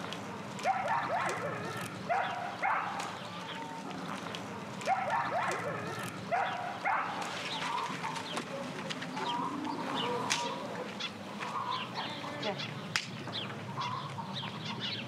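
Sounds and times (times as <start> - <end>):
chickens clucking: 4.9 - 15.0.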